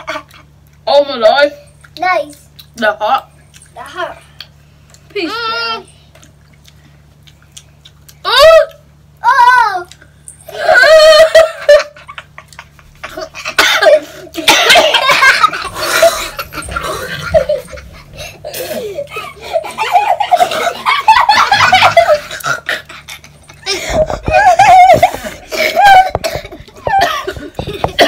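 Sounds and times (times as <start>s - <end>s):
young people laughing: 10.5s - 28.0s.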